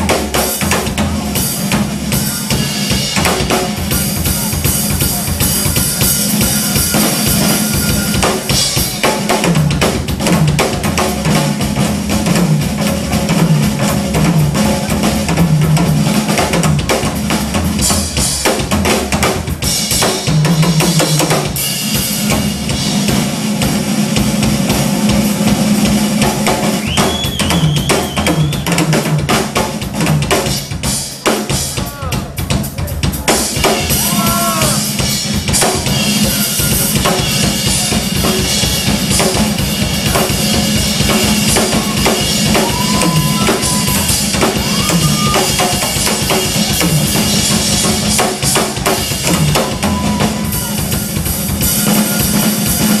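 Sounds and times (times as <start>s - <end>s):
drum kit played fast: 0.0s - 53.0s.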